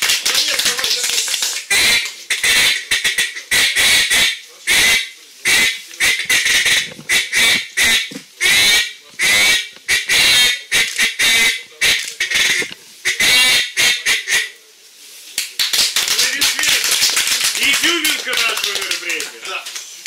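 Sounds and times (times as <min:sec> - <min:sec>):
duck call quacks: 0:01.7 - 0:14.5.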